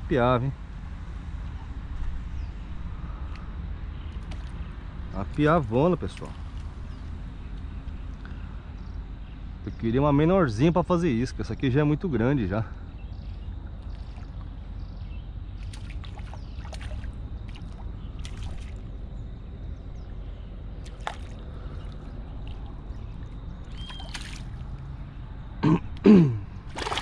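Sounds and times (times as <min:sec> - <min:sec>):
low outdoor rumble: 0:00.0 - 0:27.0
river water sloshing and splashing: 0:04.0 - 0:05.4, 0:13.3 - 0:14.8, 0:15.5 - 0:19.2, 0:20.0 - 0:25.1, 0:26.6 - 0:27.0.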